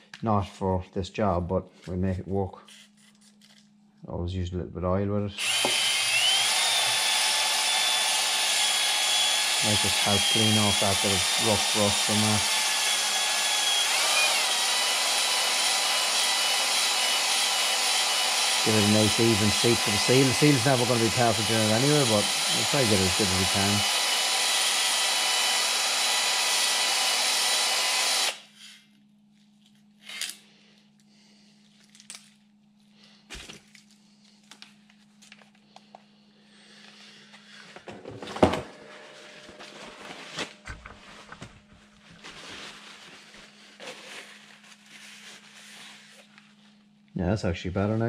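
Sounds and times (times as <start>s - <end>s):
drill-driven hone spinning: 5.4s - 28.5s.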